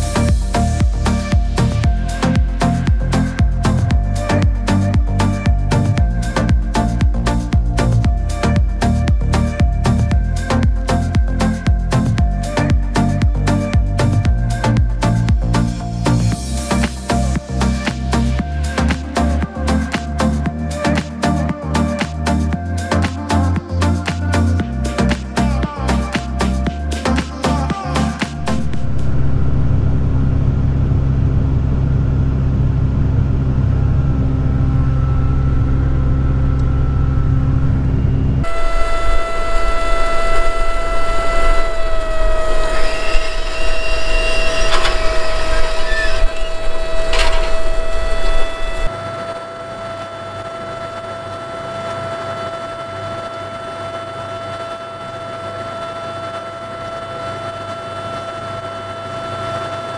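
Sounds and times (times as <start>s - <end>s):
high machine whine: 0.0s - 59.9s
tractor engine droning: 24.8s - 48.9s.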